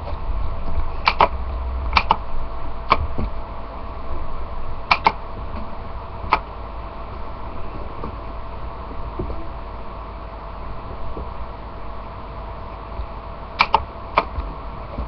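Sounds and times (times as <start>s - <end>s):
steady low hum: 0.0s - 15.0s
sharp short clicks: 1.0s - 2.2s, 4.9s - 5.2s, 13.6s - 14.4s.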